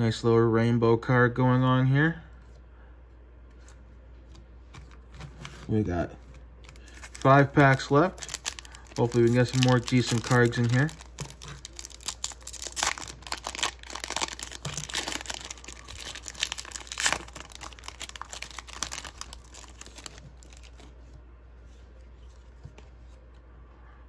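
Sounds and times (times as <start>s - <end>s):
foil wrapper tearing and crinkling: 6.6s - 20.8s.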